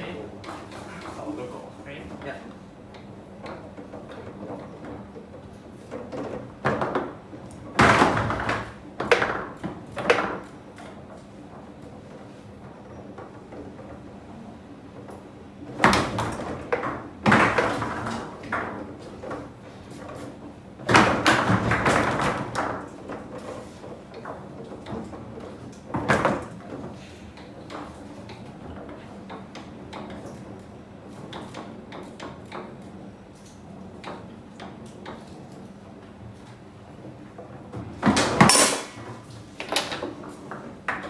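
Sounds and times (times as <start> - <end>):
foosball ball and rods knocking: 2.8 - 35.8, 36.4 - 41.0.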